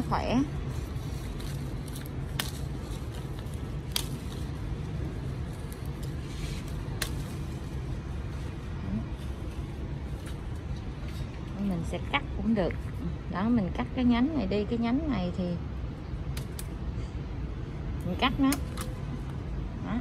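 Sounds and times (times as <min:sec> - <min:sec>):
low background rumble: 0:00.0 - 0:20.0
leaves snapping off stems: 0:01.0 - 0:04.6, 0:05.4 - 0:07.7, 0:16.3 - 0:16.8, 0:18.4 - 0:19.0.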